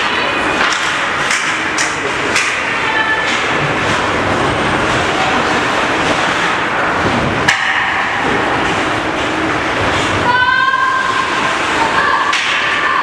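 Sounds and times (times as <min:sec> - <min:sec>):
ice game play with knocks: 0:00.6 - 0:03.5, 0:11.9 - 0:13.0.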